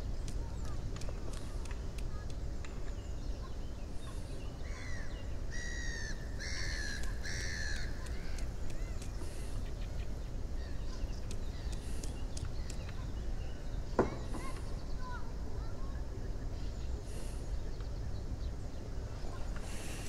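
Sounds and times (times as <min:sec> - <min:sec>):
faint small birds chirping: 0:00.0 - 0:20.0
crow cawing: 0:04.9 - 0:08.0.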